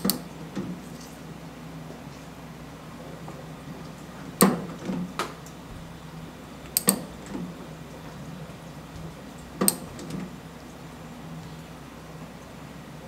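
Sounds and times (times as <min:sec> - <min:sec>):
hex driver clicking on bolts: 0:00.0 - 0:00.2, 0:06.7 - 0:07.1, 0:09.6 - 0:09.9.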